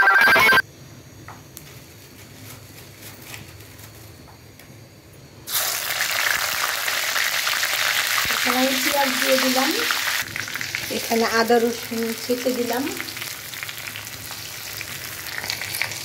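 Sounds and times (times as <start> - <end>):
ringtone-like music: 0.0 - 0.6
oil sizzling: 5.5 - 16.0.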